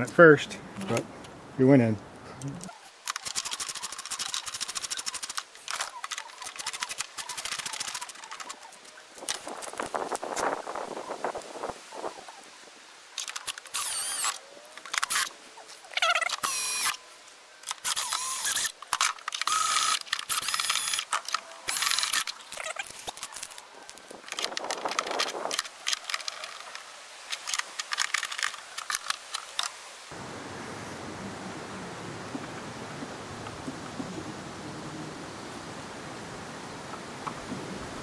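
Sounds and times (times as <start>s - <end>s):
cordless drill driving screws: 13.7s - 14.4s, 17.8s - 18.8s, 19.4s - 21.0s, 21.7s - 22.3s.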